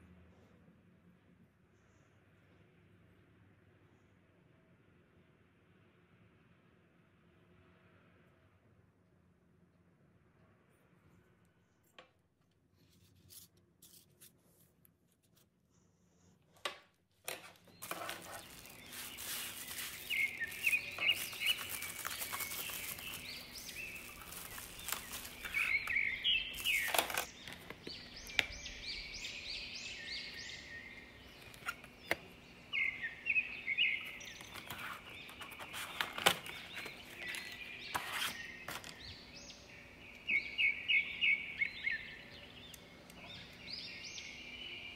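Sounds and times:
knives and plastic packaging clicking: 17.3s - 28.5s
birds chirping in trills: 17.4s - 44.9s.

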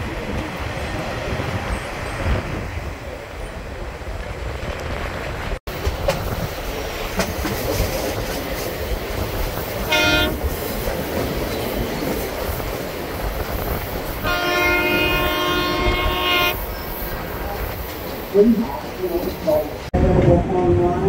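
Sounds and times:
train wheels rumbling on rail: 0.0s - 21.0s
locomotive horn blast: 9.8s - 10.4s, 14.2s - 16.6s.

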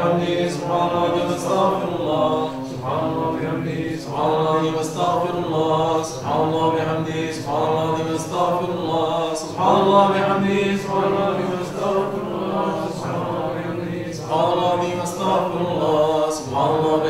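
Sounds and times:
voices chanting rhythmically: 0.0s - 17.0s.

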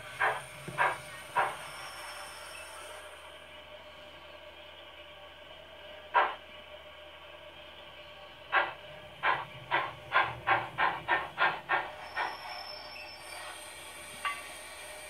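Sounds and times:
thin steam hiss: 0.0s - 3.2s, 11.9s - 15.0s
model train steam chuffs: 0.0s - 15.0s.

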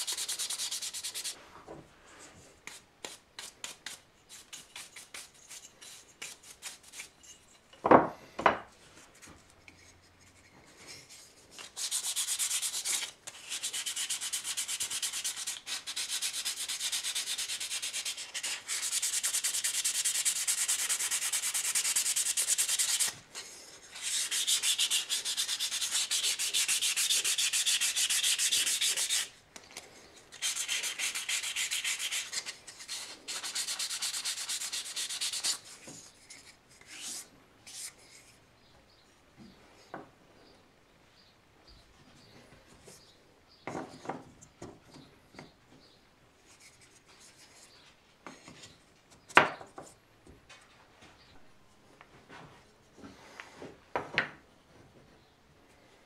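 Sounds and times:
sandpaper sanding wood: 0.0s - 1.4s, 11.7s - 29.3s, 30.4s - 35.8s.

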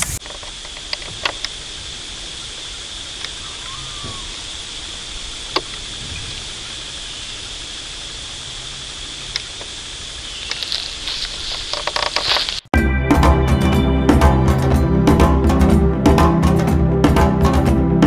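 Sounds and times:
insects droning: 0.2s - 12.7s
sharp clicks: 10.4s - 12.7s.

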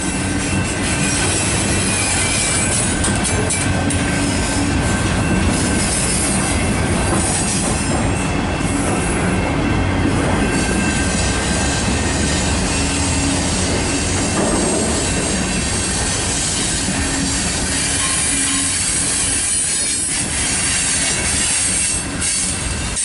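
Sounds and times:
freight train wheels rumbling: 0.0s - 23.0s
high-pitched wheel squeal: 10.4s - 23.0s.

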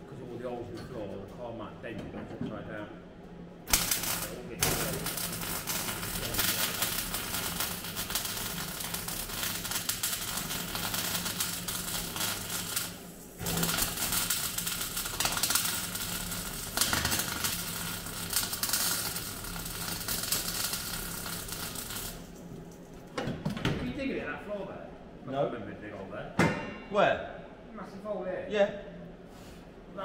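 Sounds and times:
welder crackling: 3.6s - 22.9s.

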